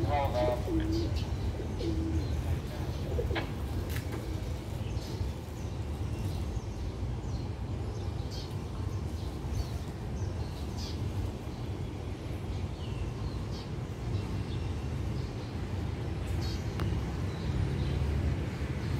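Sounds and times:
low cooing call: 0.0 - 2.4
birds chirping: 0.0 - 18.9.

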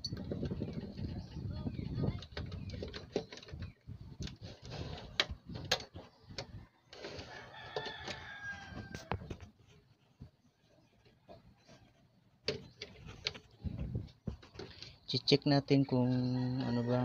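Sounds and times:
rooster crowing: 7.2 - 9.3, 16.2 - 17.0.

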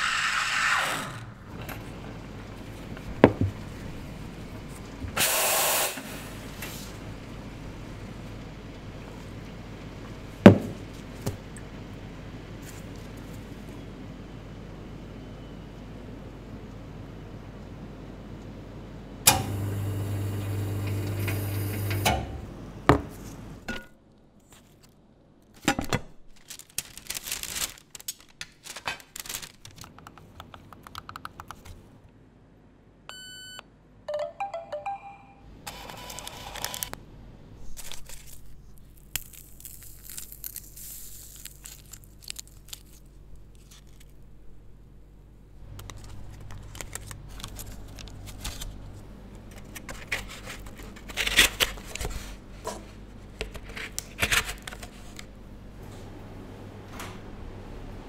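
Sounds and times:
scattered clicks and taps: 29.8 - 31.7
payment terminal beep: 33.1 - 36.2
paper and cup carriers rustling: 45.7 - 55.3.

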